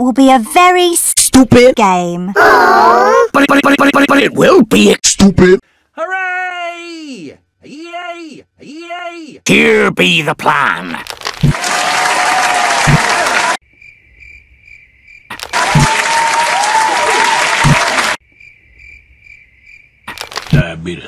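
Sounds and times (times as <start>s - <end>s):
crowd cheering and applauding: 11.5s - 13.6s, 15.4s - 18.2s
crickets chirping: 13.6s - 15.5s, 18.2s - 21.0s.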